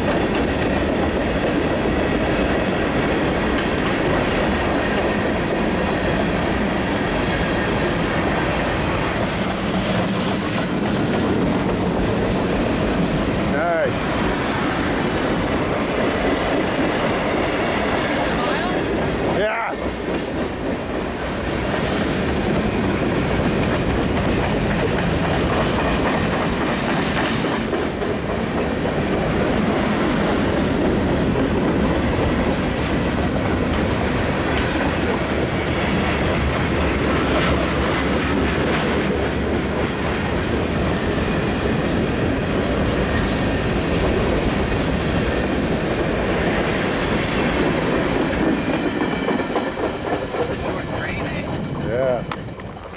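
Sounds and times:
train wheels rolling on rails: 0:00.0 - 0:52.9.

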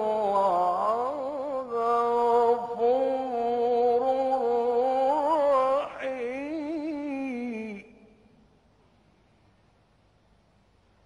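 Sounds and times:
man reciting melodically: 0:00.0 - 0:08.3.

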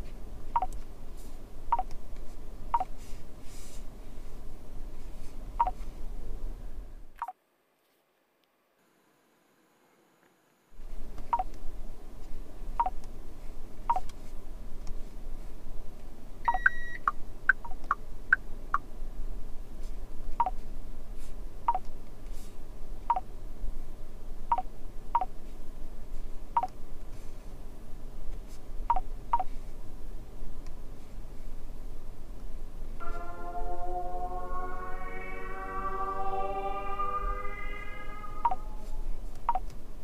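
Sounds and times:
touchscreen beeps: 0:00.6 - 0:00.8, 0:16.5 - 0:17.1, 0:33.0 - 0:39.6
low steady hum: 0:10.8 - 0:40.0
longer higher beep: 0:33.0 - 0:39.2.

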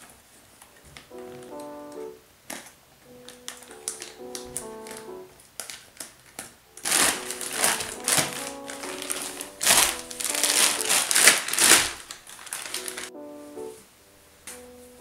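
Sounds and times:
soft piano music: 0:00.0 - 0:15.0
plastic bag crinkling: 0:02.5 - 0:13.2.

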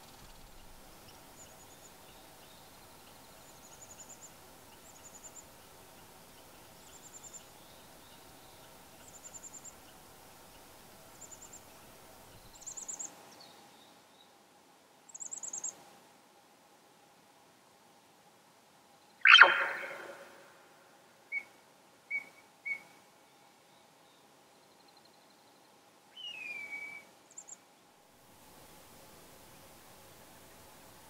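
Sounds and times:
faint open-air hiss: 0:00.0 - 0:31.0
animal calling in high trills: 0:19.2 - 0:20.6.

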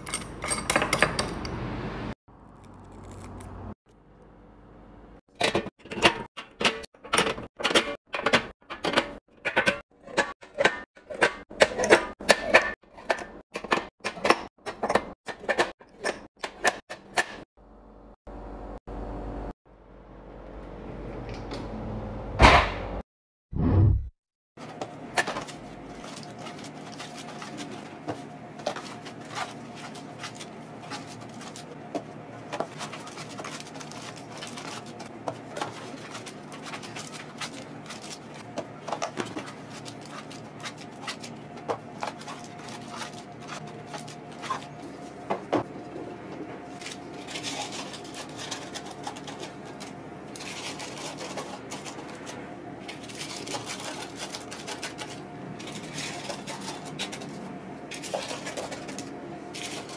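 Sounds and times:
paper sachets rustling: 0:25.3 - 0:31.8, 0:32.4 - 0:45.1, 0:46.7 - 0:59.9.

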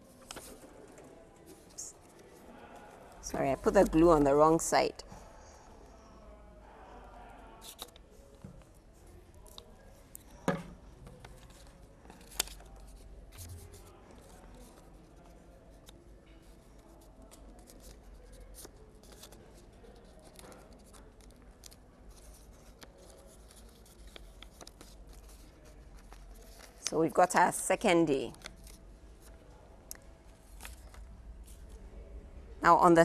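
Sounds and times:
paper rustling: 0:00.1 - 0:02.4.

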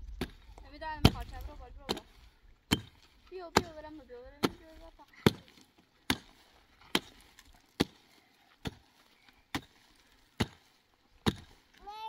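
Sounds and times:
hand tool striking blows: 0:02.7 - 0:03.8.

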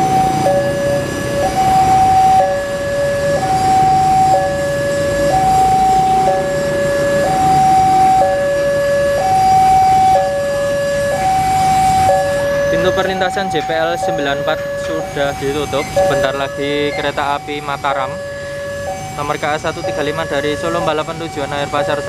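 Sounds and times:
level crossing two-tone alarm: 0:00.0 - 0:22.0.

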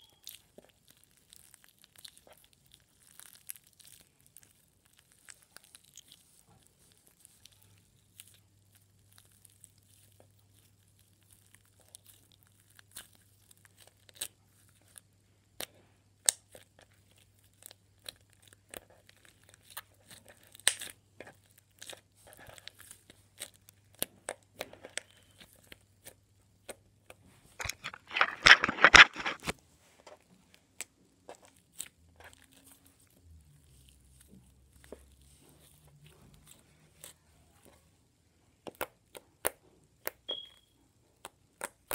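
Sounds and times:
slime squeezed with sticky pops: 0:00.0 - 0:29.5.

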